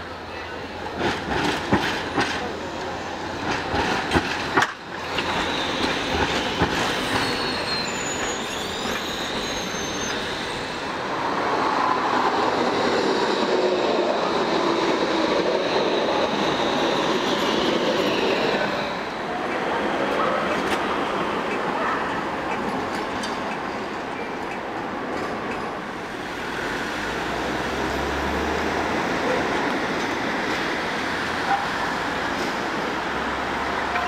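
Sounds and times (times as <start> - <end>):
tram rumbling past: 0.0 - 34.0
tram wheels squealing: 0.3 - 34.0
tram wheels knocking over rail joints: 3.4 - 7.3.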